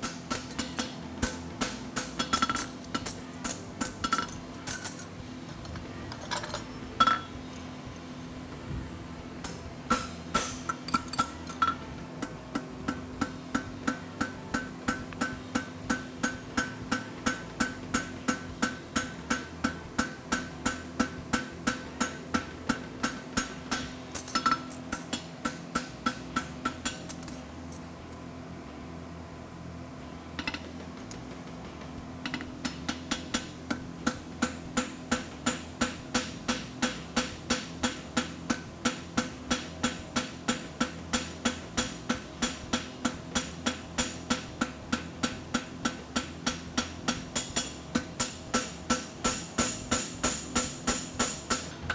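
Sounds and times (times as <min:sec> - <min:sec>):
hammer striking metal on anvil: 0:00.0 - 0:05.0, 0:06.4 - 0:07.4, 0:09.4 - 0:27.4, 0:32.2 - 0:51.9.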